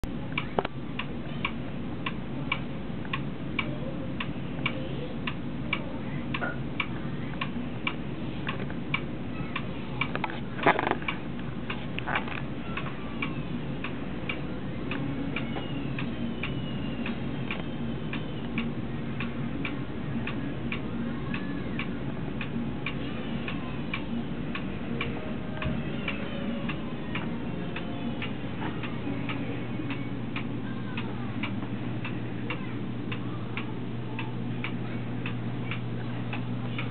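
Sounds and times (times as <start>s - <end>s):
low steady hum: 0.0s - 36.9s
clock ticking: 12.7s - 36.9s.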